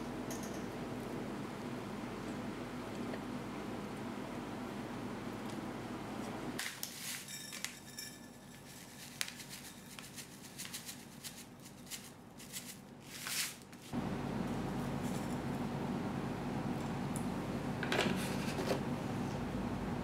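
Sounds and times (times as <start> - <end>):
steady low hum: 0.0 - 6.6, 13.9 - 20.0.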